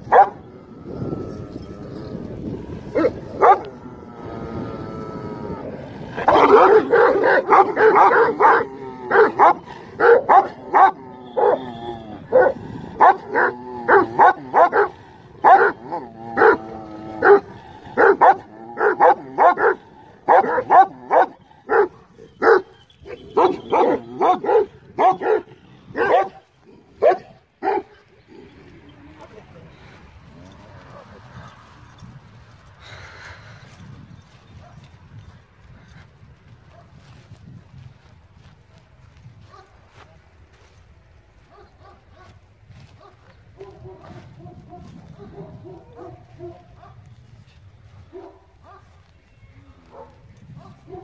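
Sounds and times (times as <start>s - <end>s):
dogs barking: 0.0s - 4.6s, 6.1s - 28.8s, 29.8s - 32.1s, 34.5s - 35.2s, 36.6s - 37.2s, 39.4s - 40.2s, 41.4s - 49.1s, 49.8s - 51.0s.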